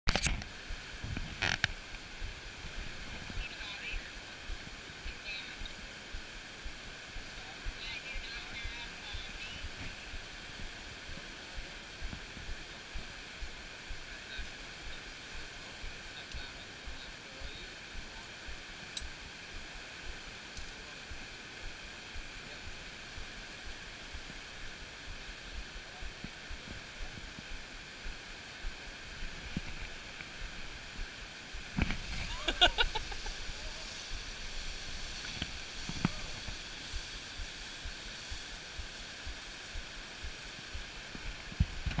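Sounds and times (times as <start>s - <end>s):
river rapids rushing: 0.5s - 42.0s
faint clicks: 18.2s - 19.2s, 20.5s - 20.9s.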